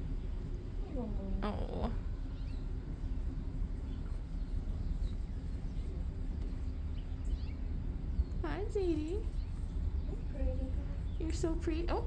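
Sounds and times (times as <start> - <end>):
steady low rumble: 0.0 - 12.0
faint high bird chirps: 2.2 - 2.8, 3.8 - 11.4.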